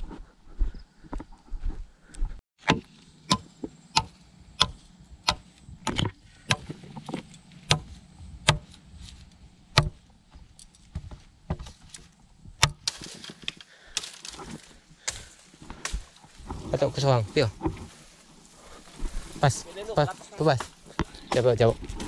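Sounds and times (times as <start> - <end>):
rustling and clattering: 5.9 - 22.0
sharp single knocks: 7.7 - 8.8, 9.8 - 10.0.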